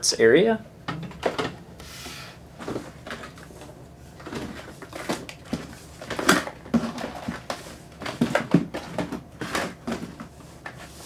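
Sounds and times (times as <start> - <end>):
gear knocking and clattering in box: 4.2 - 10.3.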